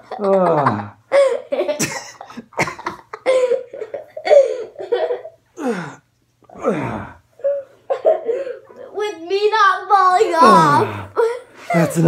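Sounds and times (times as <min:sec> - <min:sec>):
man and boy laughing: 0:00.0 - 0:05.4
coughing: 0:00.2 - 0:08.8.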